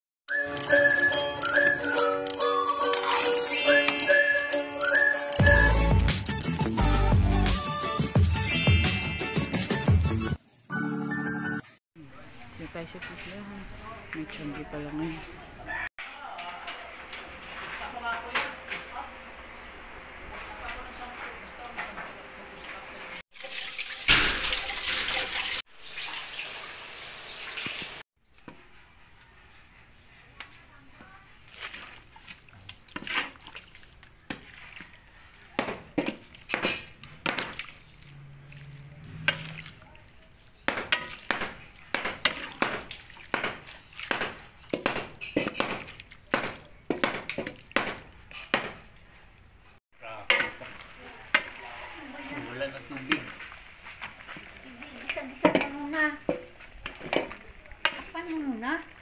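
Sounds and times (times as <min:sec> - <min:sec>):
kitchen noise: 0:12.1 - 0:26.6, 0:27.4 - 0:49.4, 0:50.0 - 0:59.0
running water rushing: 0:23.3 - 0:28.0
wooden spatula scraping a wok: 0:33.0 - 0:33.4, 0:50.3 - 0:58.6.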